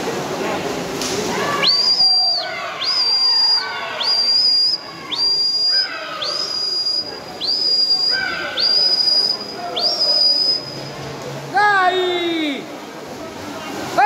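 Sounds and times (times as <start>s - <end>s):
people shouting encouragement: 1.3s - 10.2s
whistle blasts sliding upward: 1.6s - 10.8s.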